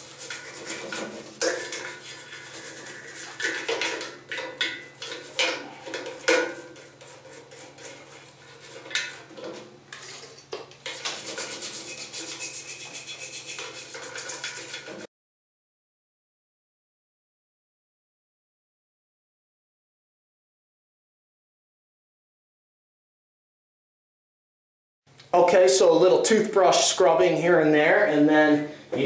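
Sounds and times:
brush clacking against metal: 0:00.0 - 0:15.1
toothbrush scrubbing metal: 0:00.0 - 0:15.1.

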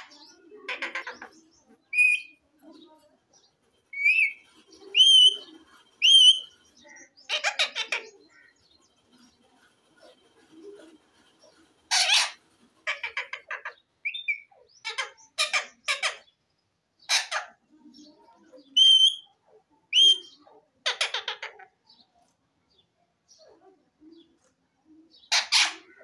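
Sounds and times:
parakeet squawking and chattering: 0:00.0 - 0:02.4, 0:03.9 - 0:08.6, 0:11.4 - 0:16.4, 0:17.0 - 0:17.7, 0:18.6 - 0:19.3, 0:19.9 - 0:21.8, 0:25.2 - 0:26.0
bird whistles: 0:02.0 - 0:02.4, 0:04.0 - 0:05.4, 0:06.0 - 0:06.5, 0:18.7 - 0:19.3, 0:19.9 - 0:20.4.

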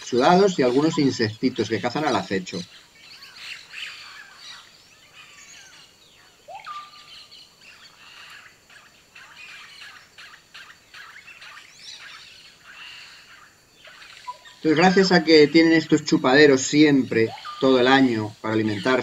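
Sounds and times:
high chirps and calls: 0:00.0 - 0:19.0.

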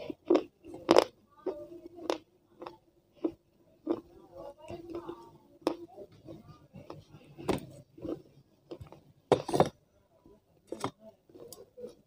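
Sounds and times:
crunchy chewing: 0:00.0 - 0:04.1, 0:04.8 - 0:09.8.

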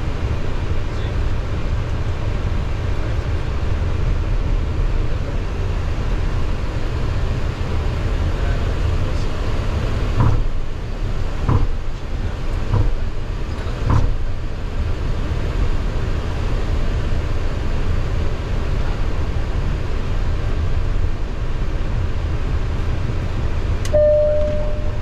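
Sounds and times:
jet engines idling rumble: 0:00.0 - 0:25.0
soft thumps: 0:11.5 - 0:11.8.

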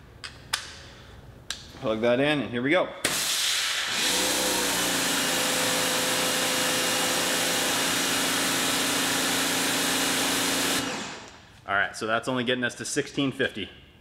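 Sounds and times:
pressure washer motor humming: 0:03.9 - 0:11.4.

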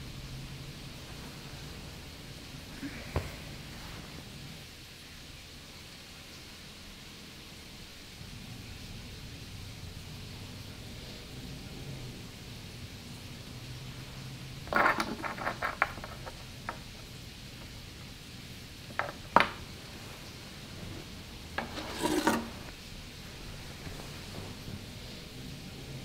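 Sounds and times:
scraping rub on hard surface: 0:14.7 - 0:17.0, 0:20.0 - 0:22.8
clicks and rattles of small objects: 0:14.7 - 0:17.1.

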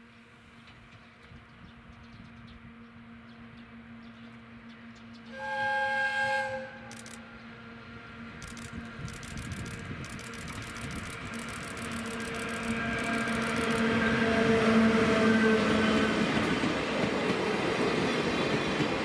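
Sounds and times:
train running with rapid clicking: 0:00.4 - 0:05.3, 0:06.7 - 0:19.0
steam whistle blast: 0:05.3 - 0:06.9.

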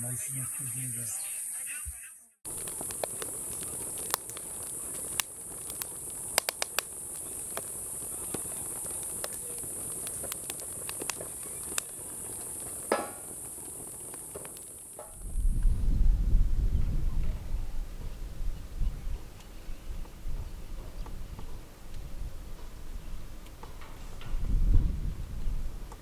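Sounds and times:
insects shrilling: 0:00.0 - 0:15.5
loud crack of fire: 0:02.4 - 0:26.0
wood fire crackling: 0:02.4 - 0:26.0.

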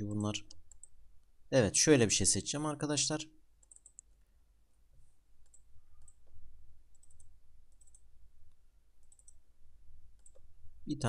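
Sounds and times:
computer mouse clicks: 0:00.4 - 0:01.0, 0:03.6 - 0:04.3, 0:05.4 - 0:09.4, 0:10.2 - 0:10.5.

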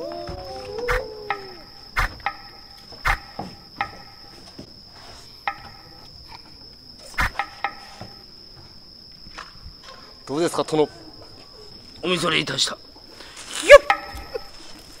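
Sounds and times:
crickets trilling: 0:00.0 - 0:15.0
sharp knocks: 0:02.0 - 0:04.3, 0:07.2 - 0:08.2.

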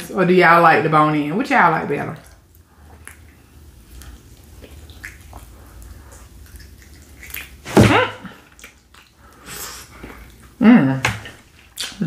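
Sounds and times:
wet lip smacks: 0:03.0 - 0:07.6, 0:08.5 - 0:10.4, 0:11.3 - 0:12.0.

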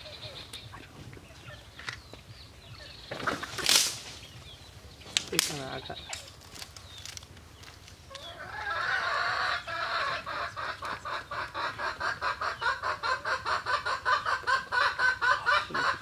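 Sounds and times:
chicken clucking: 0:08.1 - 0:16.0.

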